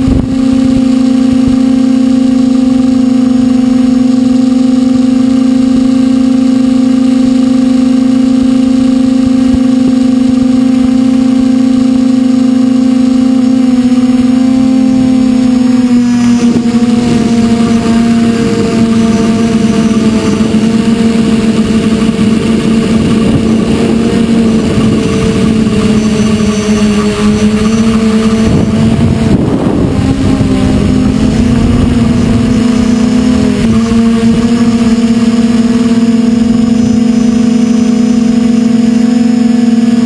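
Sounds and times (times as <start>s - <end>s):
wind rush: 0.0s - 1.6s, 14.9s - 34.9s
drone propellers humming: 0.0s - 40.0s.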